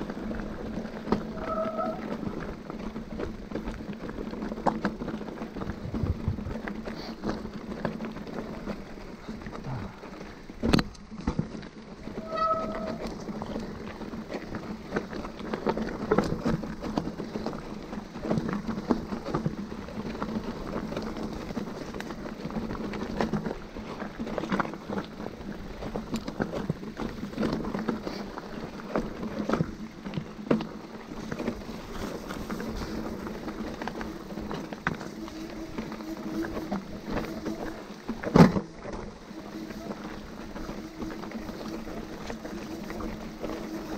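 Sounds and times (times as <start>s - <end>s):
bike clattering over bumps: 0.0s - 43.9s
bike tyres on rough trail: 0.0s - 43.9s.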